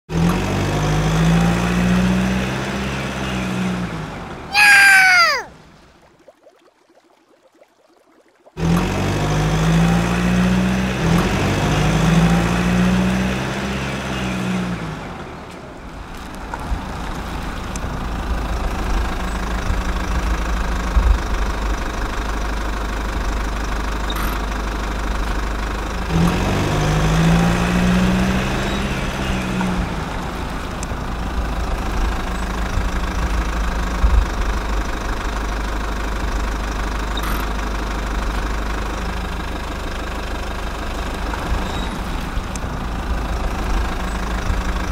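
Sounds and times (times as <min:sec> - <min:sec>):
heavy vehicle engine idling: 0:15.0 - 0:26.1, 0:29.8 - 0:44.9.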